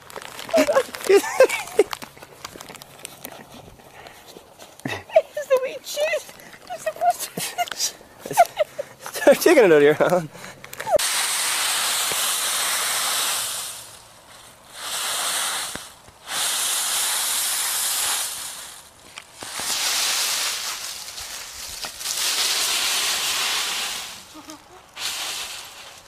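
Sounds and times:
dry leaves rustling and crunching: 0:00.0 - 0:08.0, 0:16.6 - 0:26.0.

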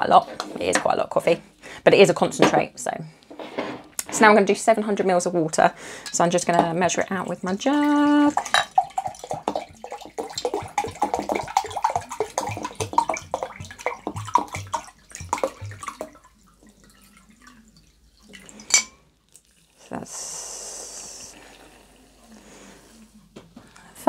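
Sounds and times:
water glugging from bottle: 0:06.1 - 0:18.8
water pouring onto coffee grounds: 0:07.7 - 0:18.7.

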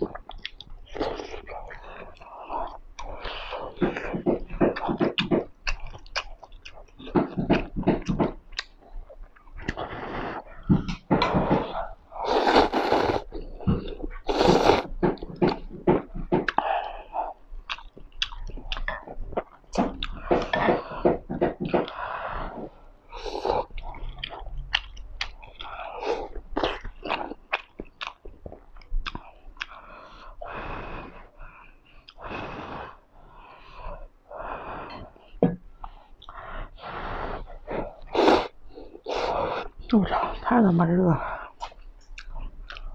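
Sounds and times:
chewing with mouth clicks: 0:00.0 - 0:09.9, 0:16.3 - 0:22.0, 0:23.6 - 0:29.8, 0:41.6 - 0:42.9
person slurping noodles: 0:11.6 - 0:14.9, 0:36.8 - 0:39.7.

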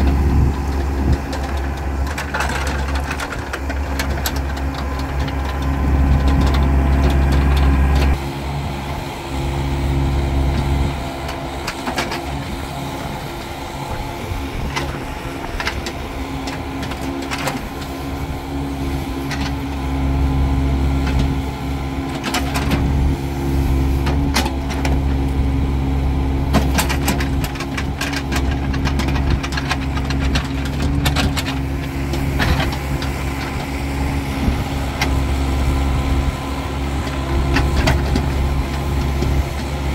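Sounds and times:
excavator diesel engine running: 0:00.0 - 0:39.9
bucket knocking and scraping soil: 0:26.4 - 0:39.9.

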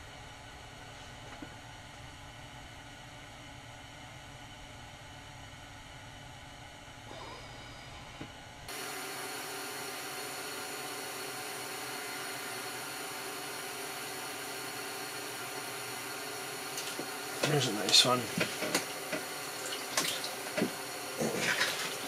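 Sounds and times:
steady hiss: 0:07.1 - 0:22.0.

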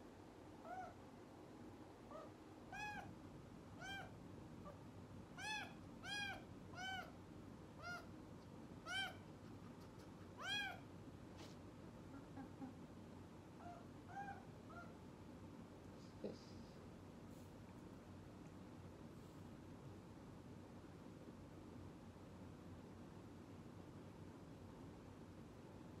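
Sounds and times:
kitten meowing: 0:02.1 - 0:03.1, 0:03.8 - 0:04.1, 0:05.4 - 0:07.1, 0:07.8 - 0:08.1, 0:08.8 - 0:09.2, 0:10.4 - 0:10.8, 0:13.6 - 0:14.9.

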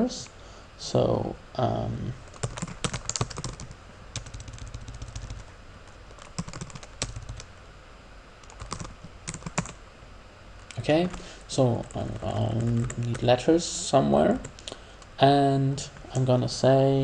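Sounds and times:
keyboard typing clicks: 0:02.3 - 0:05.4, 0:06.1 - 0:07.5, 0:08.4 - 0:09.8.

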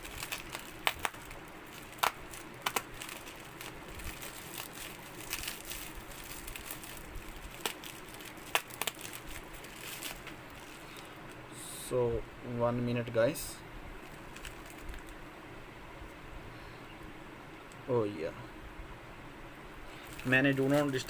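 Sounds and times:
bubble wrap crinkling and snapping: 0:00.0 - 0:11.4, 0:14.0 - 0:15.2, 0:19.9 - 0:21.0.

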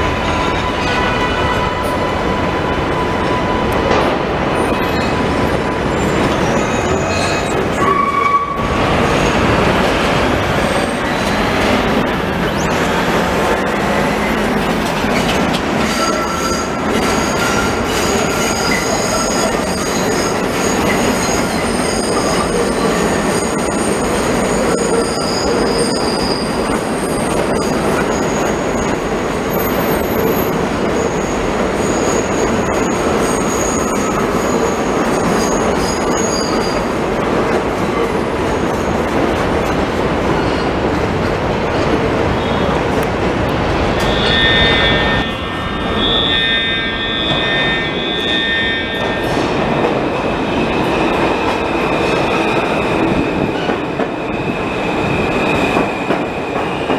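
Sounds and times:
train wheels rumbling on track: 0:00.0 - 0:46.3, 0:47.0 - 0:56.9
high-pitched wheel squeal: 0:05.9 - 0:09.4, 0:15.1 - 0:29.0, 0:29.6 - 0:36.9, 0:43.7 - 0:56.3.

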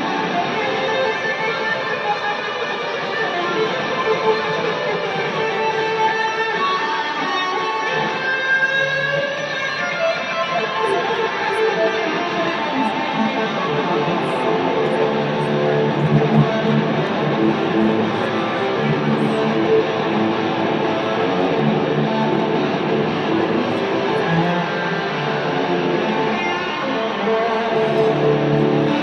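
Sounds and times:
electric guitar music: 0:00.0 - 0:29.0.

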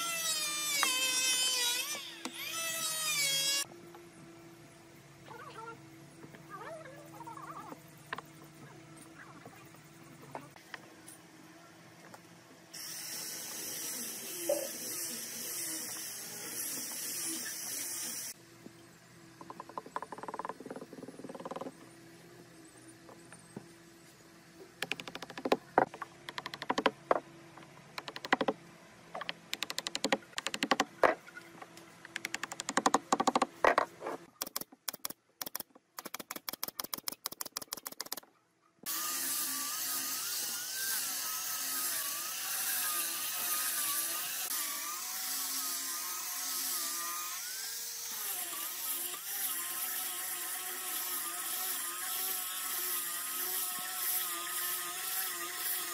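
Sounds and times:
angle grinder sanding wood: 0:12.8 - 0:18.4, 0:38.9 - 0:55.9.

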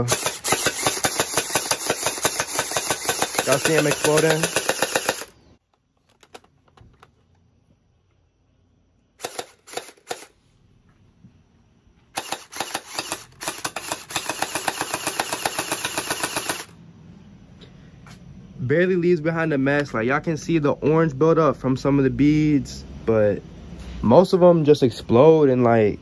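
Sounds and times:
gel ball blaster firing: 0:00.0 - 0:05.4, 0:09.2 - 0:10.3, 0:12.2 - 0:16.7.

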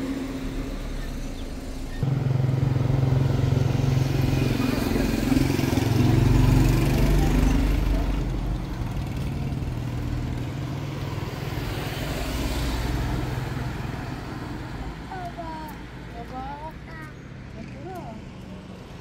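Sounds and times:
car driving past: 0:00.0 - 0:15.2
low engine hum: 0:00.0 - 0:18.9.

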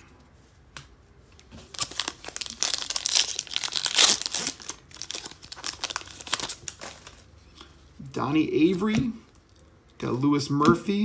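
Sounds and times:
foil wrapper tearing and crinkling: 0:01.6 - 0:07.2.

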